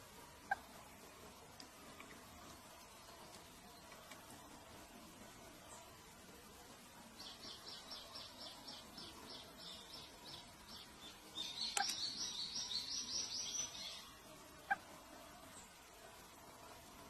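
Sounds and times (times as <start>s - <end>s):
nestlings chirping: 7.2s - 14.1s.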